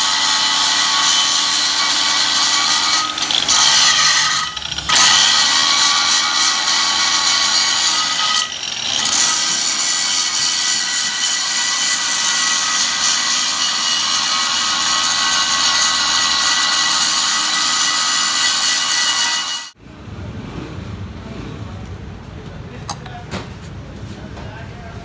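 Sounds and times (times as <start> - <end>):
angle grinder grinding steel: 0.0 - 19.8.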